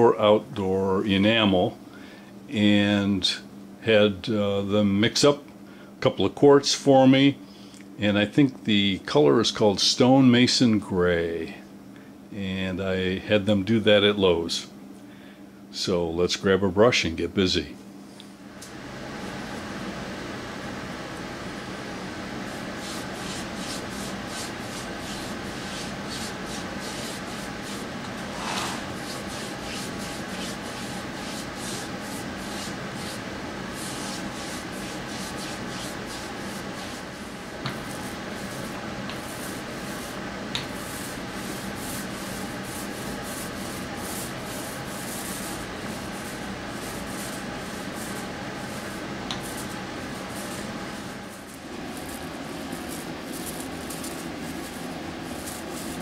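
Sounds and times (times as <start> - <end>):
background hum: 0.0 - 56.0
paintbrush scrubbing on wood: 22.4 - 56.0.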